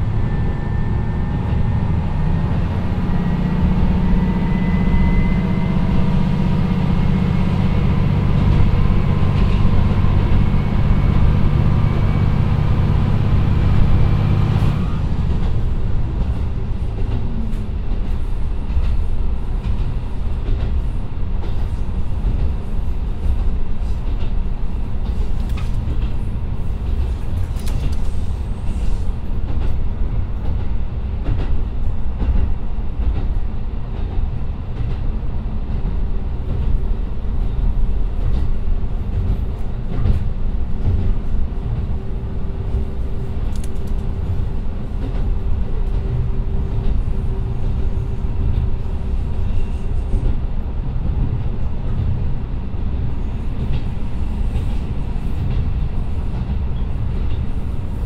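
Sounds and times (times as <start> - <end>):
diesel engine drone and whine: 0.0 - 18.4
wheels rumbling on rails: 0.0 - 58.0.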